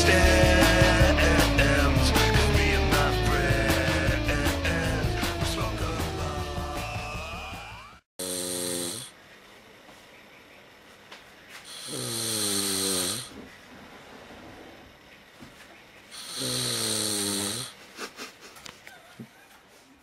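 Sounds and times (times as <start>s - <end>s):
man snoring loudly: 0.0s - 9.1s, 11.7s - 13.4s, 16.2s - 17.8s.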